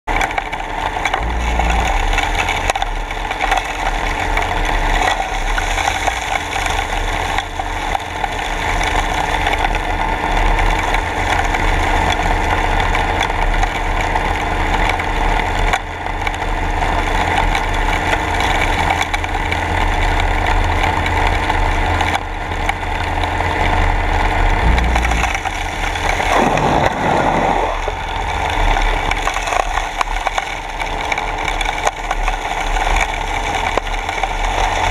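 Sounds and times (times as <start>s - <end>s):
underwater machine hum: 0.1s - 17.2s, 17.8s - 34.9s
pitch sweeping down and up: 24.6s - 29.1s
water and sand rushing into hose: 24.6s - 34.9s.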